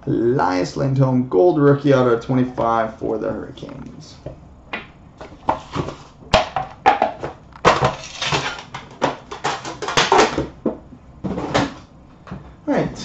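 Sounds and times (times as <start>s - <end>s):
packaging crinkling and rustling: 7.2s - 10.5s.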